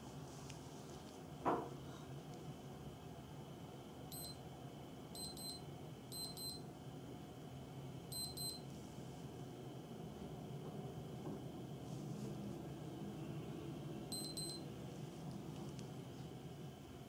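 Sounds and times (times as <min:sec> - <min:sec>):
digital watch beeping: 0:04.1 - 0:04.4, 0:05.2 - 0:06.6, 0:08.1 - 0:08.6, 0:14.1 - 0:14.6.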